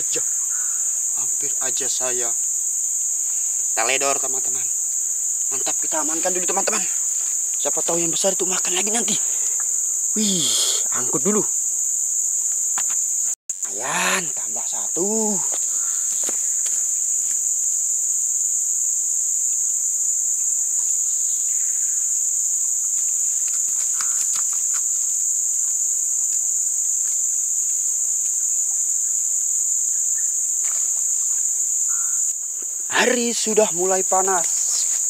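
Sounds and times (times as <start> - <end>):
rustles: 0.0 - 10.1, 20.5 - 32.9, 34.4 - 35.0
insect chorus drone: 0.0 - 35.0.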